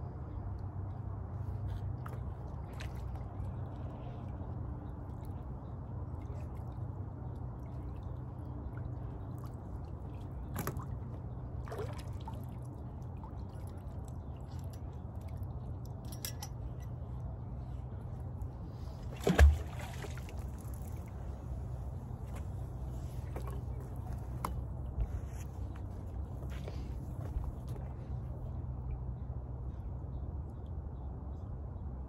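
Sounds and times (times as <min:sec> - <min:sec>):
steady low rumble: 0:00.0 - 0:32.0.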